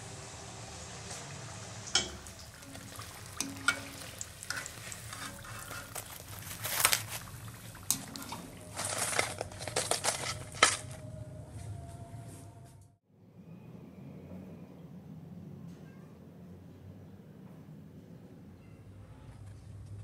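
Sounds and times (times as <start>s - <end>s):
food deep-frying in hot oil: 0.0s - 10.4s
oil popping: 1.0s - 10.8s.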